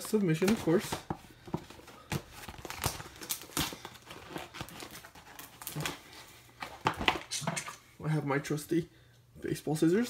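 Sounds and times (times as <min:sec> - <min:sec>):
envelope crinkling and rustling: 0:00.0 - 0:07.5.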